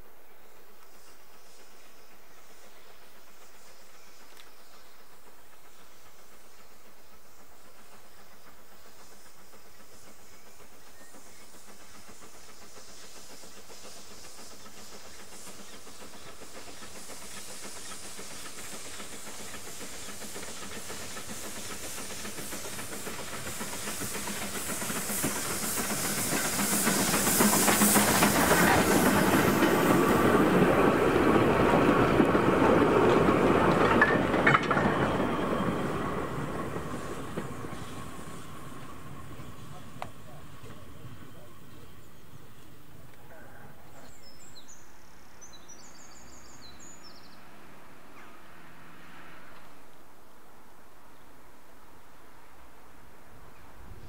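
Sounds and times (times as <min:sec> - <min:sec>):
steam hissing: 0:00.0 - 0:54.0
steam locomotive passing: 0:00.0 - 0:54.0
wheel clicks over rail joints: 0:33.1 - 0:35.8.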